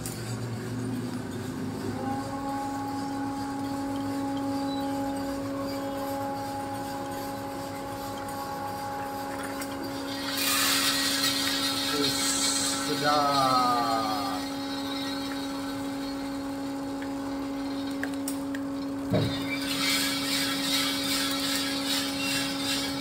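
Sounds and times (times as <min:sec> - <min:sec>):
electric motor humming: 0:00.0 - 0:23.0
loud rushing hiss: 0:10.1 - 0:16.3.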